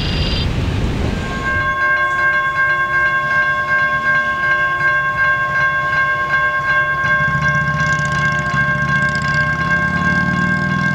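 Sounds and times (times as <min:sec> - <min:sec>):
railroad crossing bell ringing: 0:01.2 - 0:10.9.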